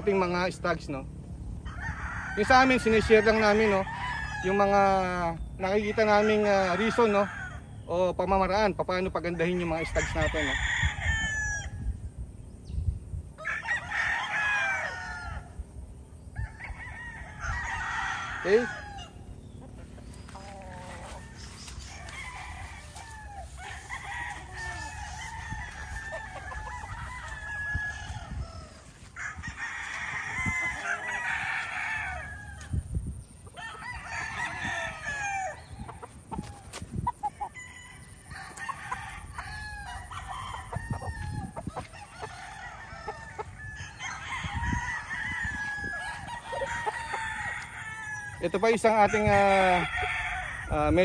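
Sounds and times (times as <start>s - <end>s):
roosters crowing: 0.0s - 12.0s, 13.3s - 51.0s
chickens clucking: 19.2s - 29.5s, 35.7s - 43.6s.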